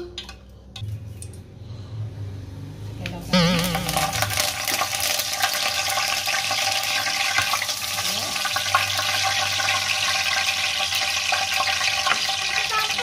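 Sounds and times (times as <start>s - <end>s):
leaves sizzling in hot oil: 3.6s - 13.0s.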